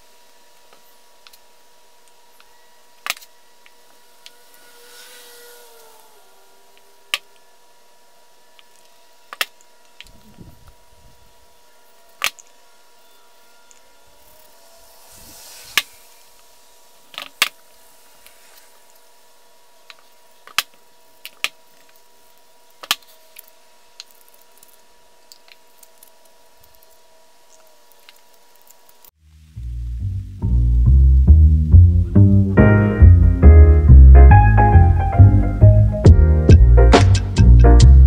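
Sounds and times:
rustling hiss: 0.0s - 11.4s, 13.6s - 22.4s
faint steady hum: 0.0s - 38.0s.

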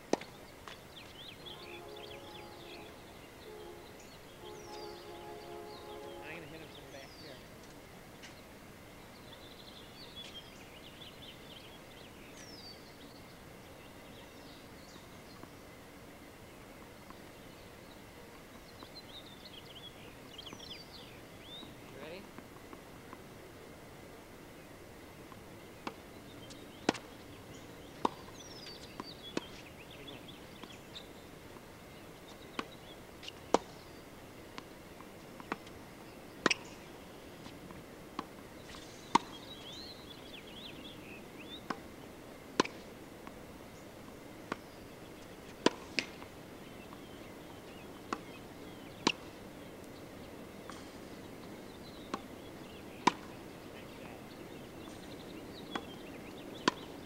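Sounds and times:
birds chirping: 0.0s - 57.0s
tennis racket hitting ball: 26.8s - 27.1s, 38.2s - 39.5s, 41.6s - 41.8s, 42.6s - 43.4s, 45.4s - 46.3s, 53.0s - 53.4s, 56.6s - 57.0s.

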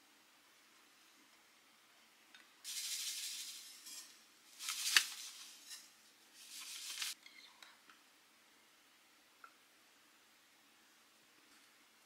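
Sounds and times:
sugar pouring into pan: 2.7s - 7.2s.

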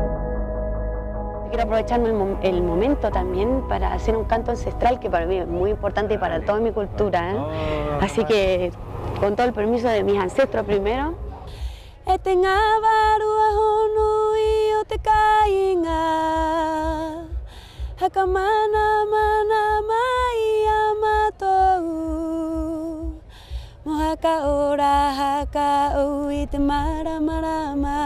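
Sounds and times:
woman singing unaccompanied: 1.5s - 11.2s, 12.0s - 28.0s
breaths between phrases: 7.4s - 8.0s.

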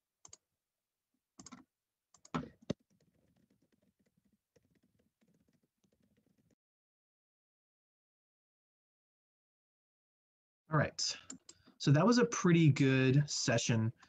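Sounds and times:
louder keyboard clicks: 1.4s - 6.6s
typing on a computer keyboard: 1.4s - 6.6s.

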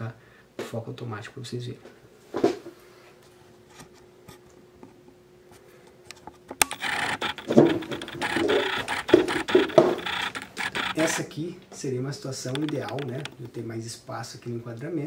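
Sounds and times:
sharp click: 6.1s - 11.3s, 12.5s - 13.6s
lens autofocus motor whirring: 6.5s - 11.4s, 12.5s - 13.5s.

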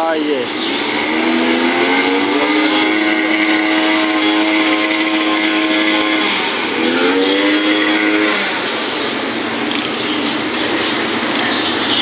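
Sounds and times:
vehicle engine revving: 0.0s - 11.6s.

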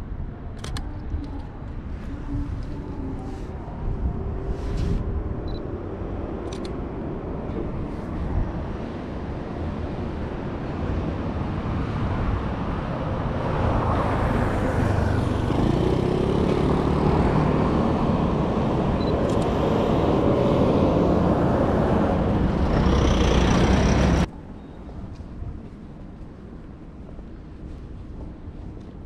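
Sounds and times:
road traffic passing: 0.0s - 25.6s
truck passing close: 10.8s - 24.3s
engine rising in pitch: 14.9s - 24.3s.

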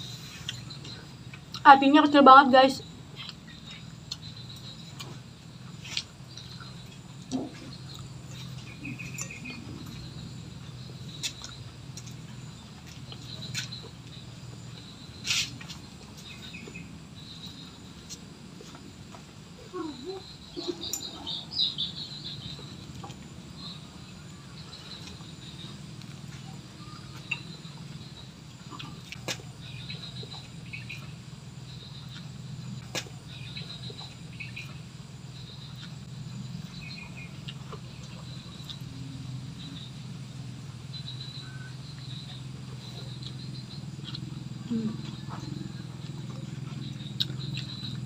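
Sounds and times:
steady low hum: 0.0s - 48.0s
chewing: 3.1s - 39.9s, 41.4s - 48.0s
high chirping: 5.8s - 18.2s, 19.6s - 25.8s.

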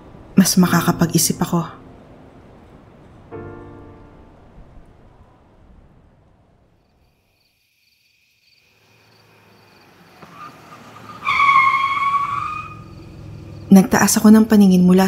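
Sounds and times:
faint crickets chirping: 0.0s - 15.0s
car braking: 9.0s - 13.7s
tyres squealing: 10.0s - 13.5s.

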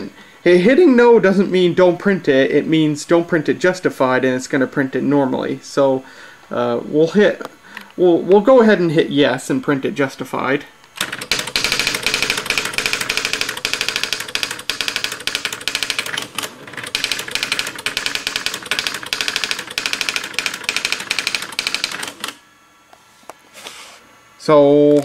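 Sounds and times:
typewriter type strikes: 11.0s - 22.4s.

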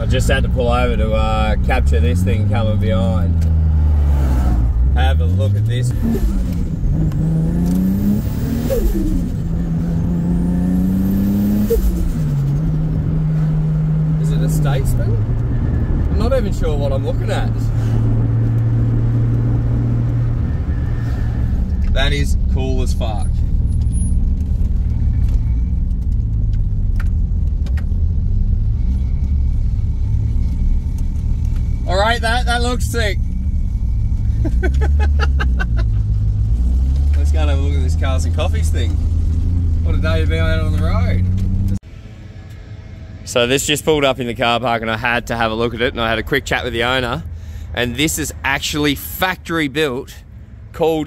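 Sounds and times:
car engine from inside cabin: 0.0s - 43.4s.

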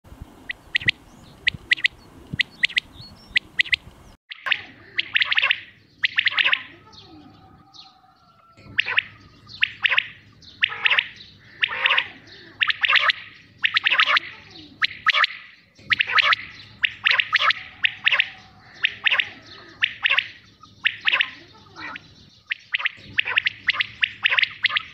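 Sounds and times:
quail calling: 0.4s - 24.9s.

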